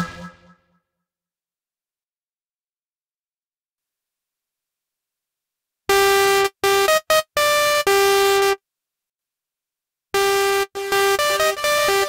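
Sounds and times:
bright synthesizer notes: 0.0s - 0.7s, 10.2s - 12.0s.

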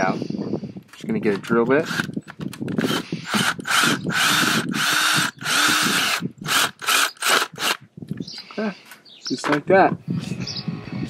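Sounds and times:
cordless drill bursts: 1.8s - 2.1s, 2.8s - 7.8s.

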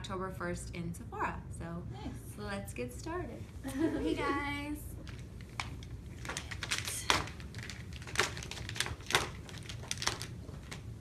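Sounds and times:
packaging rustling and clicking: 5.0s - 11.0s.

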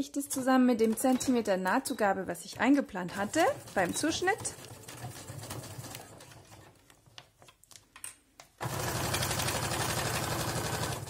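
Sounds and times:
sewing machine running: 3.1s - 6.6s, 8.6s - 11.0s.

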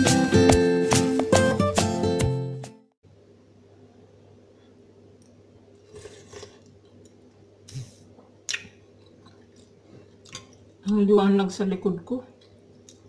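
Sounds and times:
low room hum: 3.0s - 13.0s
person slurping soup: 5.8s - 6.8s
chewing: 5.8s - 10.8s.

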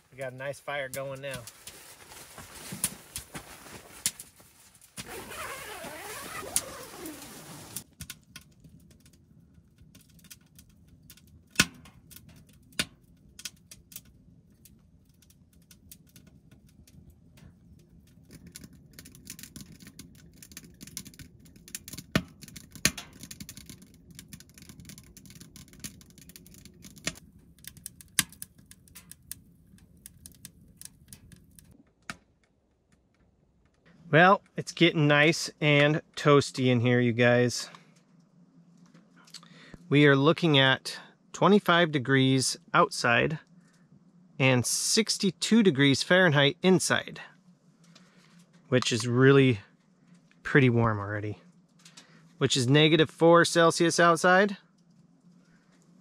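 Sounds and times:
low rush of burning fire: 0.0s - 31.8s
wood fire crackling and popping: 0.1s - 33.8s
tent zipper pulled: 5.0s - 7.8s.

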